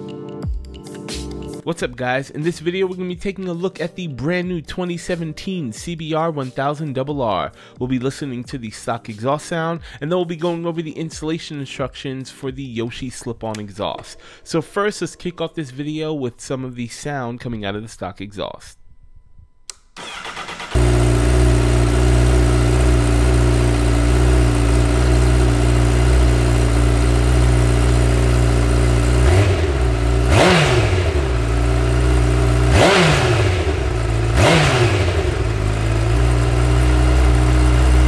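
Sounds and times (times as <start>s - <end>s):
motorcycle engine idling and revving: 20.0s - 38.0s.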